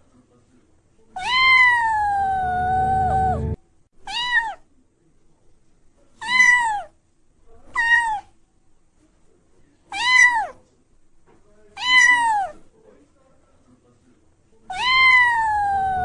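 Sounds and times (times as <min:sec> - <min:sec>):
cat meowing: 0:01.2 - 0:04.6, 0:06.2 - 0:06.9, 0:07.7 - 0:08.3, 0:09.9 - 0:10.6, 0:11.8 - 0:12.6, 0:14.7 - 0:16.0.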